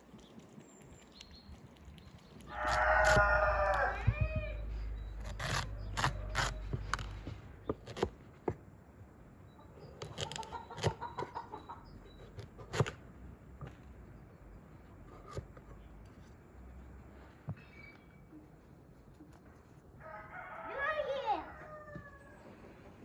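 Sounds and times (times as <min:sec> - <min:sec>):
knife chopping pumpkin on wood: 0:02.7 - 0:04.4, 0:05.2 - 0:08.6, 0:12.3 - 0:13.0
chickens clucking: 0:09.6 - 0:12.4.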